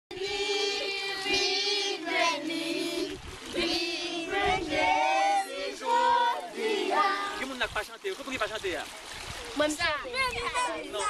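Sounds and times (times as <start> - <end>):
children singing in unison: 0.1 - 7.4.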